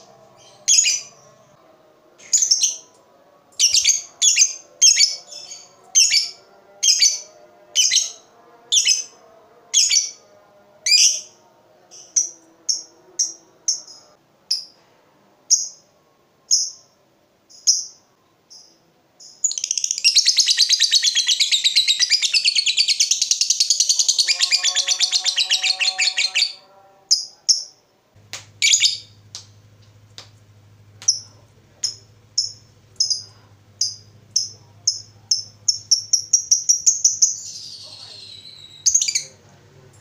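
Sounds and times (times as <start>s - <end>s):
faint low hum: 0.0s - 40.0s
lovebird chirping and trilling: 0.4s - 1.3s, 2.2s - 2.9s, 3.6s - 8.2s, 9.8s - 10.2s, 19.4s - 27.7s, 28.6s - 29.2s, 31.0s - 39.4s.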